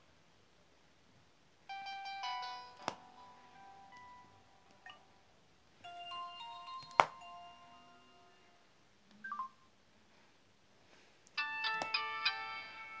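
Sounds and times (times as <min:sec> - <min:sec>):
electronic phone tune: 0:01.7 - 0:05.0
electronic chime melody: 0:05.8 - 0:08.6.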